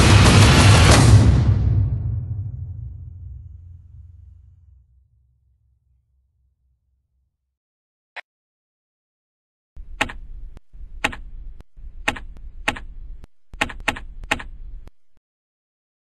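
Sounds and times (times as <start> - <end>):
low hum: 1.7 - 7.2, 9.8 - 15.2
sharp clicks: 9.8 - 15.0.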